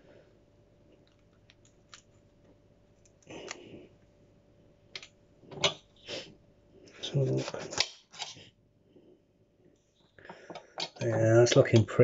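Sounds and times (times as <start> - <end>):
person sniffing: 6.0 - 6.4.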